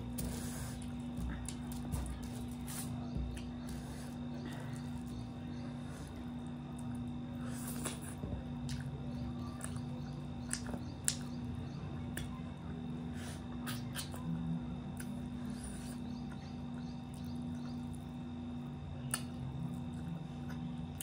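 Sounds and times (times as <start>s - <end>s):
chewing: 0.0s - 11.5s, 12.1s - 14.3s
low hum: 0.0s - 21.0s
wet clicks and smacks: 10.4s - 11.4s.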